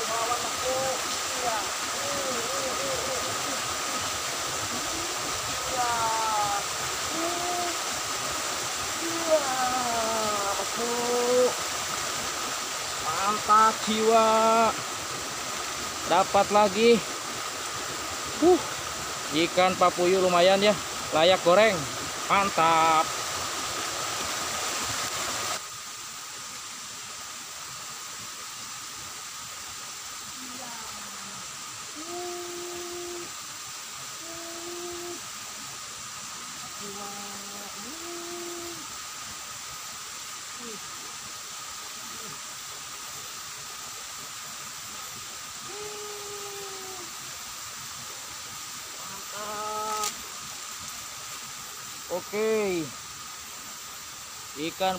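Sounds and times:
steady outdoor hiss: 0:00.0 - 0:54.9
drawn-out tone: 0:32.0 - 0:33.4.

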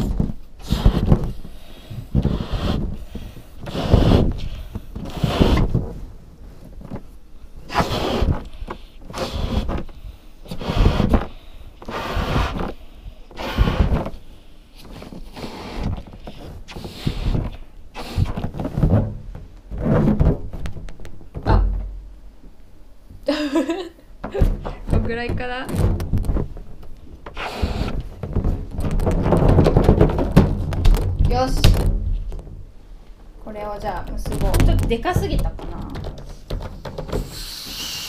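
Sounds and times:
breaths blowing up balloon: 0:00.0 - 0:06.0, 0:07.6 - 0:18.9, 0:27.3 - 0:28.8, 0:36.7 - 0:38.0.

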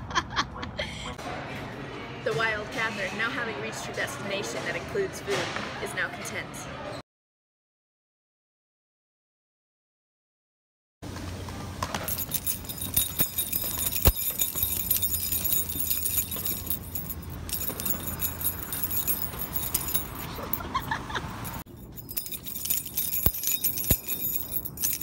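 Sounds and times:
metal keys jangling: 0:12.0 - 0:25.0.

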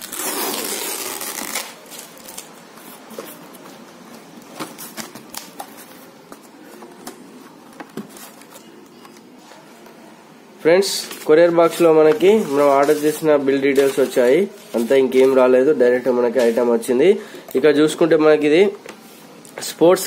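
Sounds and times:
packing tape ripping off box: 0:00.0 - 0:02.6.

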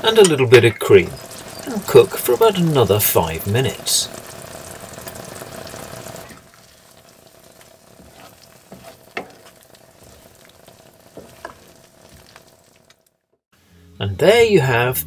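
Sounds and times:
curry sizzling in a frying pan: 0:00.0 - 0:13.3
spatula scraping and knocking pan: 0:07.5 - 0:12.5.

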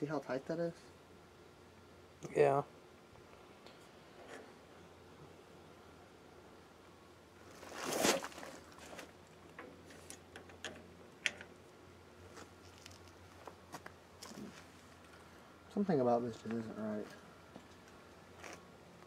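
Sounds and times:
rustling brush: 0:07.5 - 0:09.2
light metal clicks and taps: 0:09.5 - 0:11.6.

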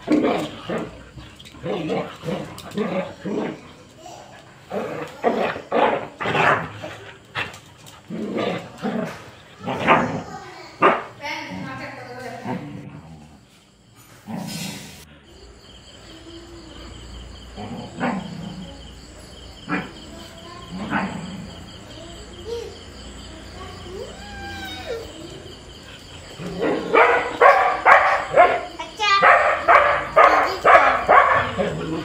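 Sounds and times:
dogs barking: 0:00.0 - 0:11.8, 0:16.9 - 0:21.9, 0:24.9 - 0:32.0
dog whining: 0:23.9 - 0:25.5.

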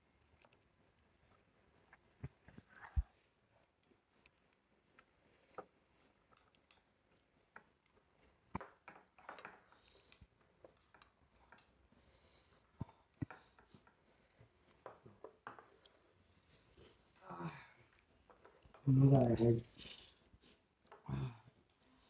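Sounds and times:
quiet eating noises: 0:00.0 - 0:22.0.

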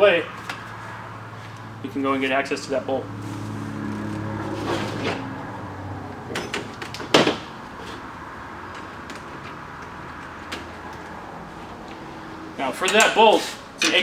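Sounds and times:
hand tools clicking and knocking: 0:12.8 - 0:13.1.

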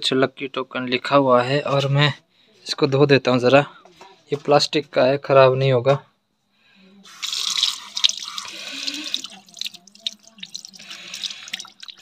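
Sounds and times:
hands rinsing with splashing: 0:07.1 - 0:12.0
tap water running into sink: 0:07.2 - 0:12.0.

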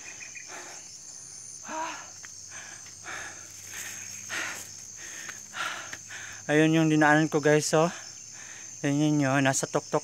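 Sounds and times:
heavy breathing: 0:00.0 - 0:06.5, 0:07.9 - 0:08.8
insects droning: 0:00.0 - 0:10.0.

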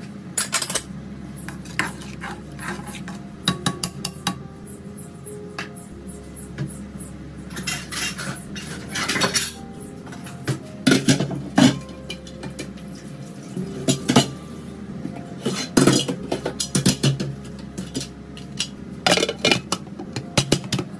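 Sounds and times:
low steady hum: 0:00.0 - 0:20.9
metal utensils clinking: 0:00.4 - 0:00.9, 0:07.5 - 0:14.4.

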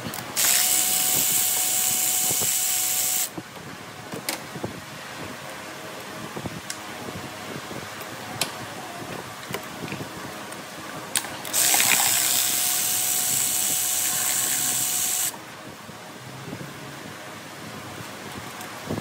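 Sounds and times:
loud steady hiss: 0:00.0 - 0:04.0, 0:10.2 - 0:19.0.

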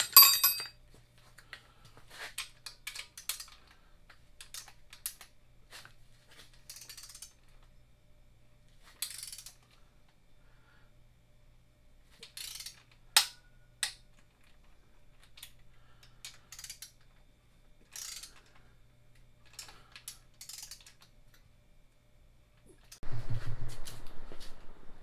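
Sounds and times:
hand ratchet clicking: 0:02.6 - 0:03.6, 0:06.6 - 0:07.4, 0:09.0 - 0:09.6, 0:12.2 - 0:14.0, 0:15.2 - 0:17.2, 0:17.9 - 0:18.6, 0:19.4 - 0:21.4.

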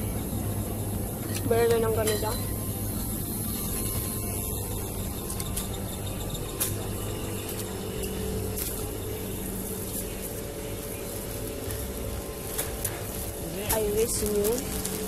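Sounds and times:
refrigeration and air conditioning hum: 0:00.0 - 0:15.0.

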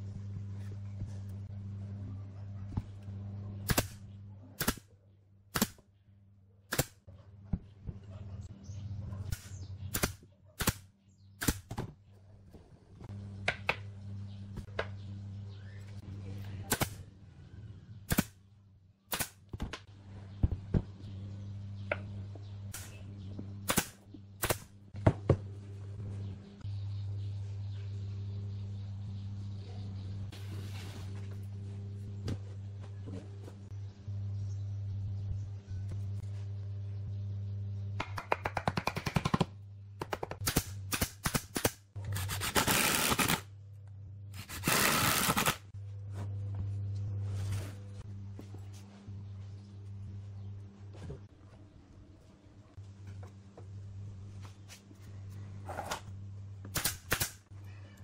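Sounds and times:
low hum: 0:00.0 - 0:19.2, 0:19.8 - 0:38.4, 0:39.5 - 0:58.0
nail gun firing into wood: 0:04.6 - 0:04.8, 0:05.5 - 0:05.8, 0:11.4 - 0:11.8, 0:19.1 - 0:19.4, 0:23.7 - 0:24.7, 0:40.4 - 0:41.8, 0:56.7 - 0:57.4.

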